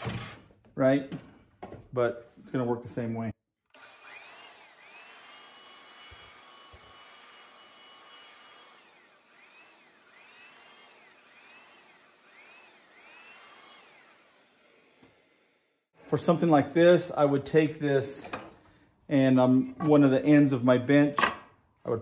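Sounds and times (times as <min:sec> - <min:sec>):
belt sander whining: 0:03.7 - 0:15.6.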